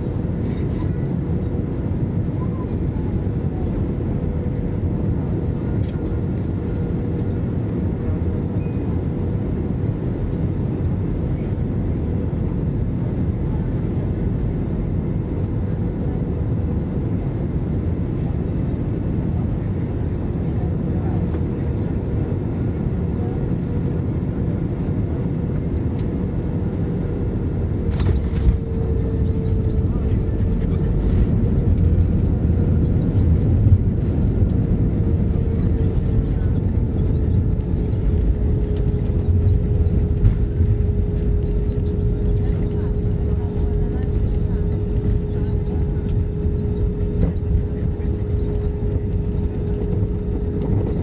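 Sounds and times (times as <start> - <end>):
jet engines and airflow rumble: 0.0 - 51.0
steady cabin hum: 27.3 - 51.0.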